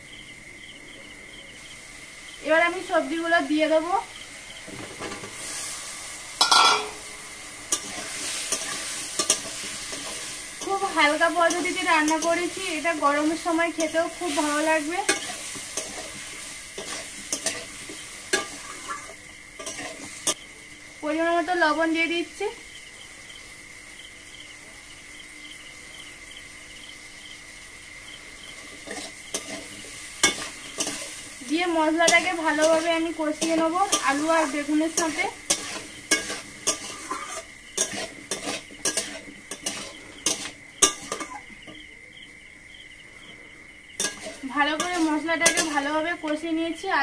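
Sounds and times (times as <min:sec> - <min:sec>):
vegetables sizzling in hot oil: 0:00.0 - 0:42.7, 0:43.6 - 0:47.0
crickets chirping: 0:00.0 - 0:47.0
metal clank: 0:06.4 - 0:07.1
metal spatula scraping pan: 0:06.4 - 0:07.1, 0:07.7 - 0:20.4, 0:28.6 - 0:31.4, 0:32.0 - 0:41.4, 0:44.0 - 0:45.9.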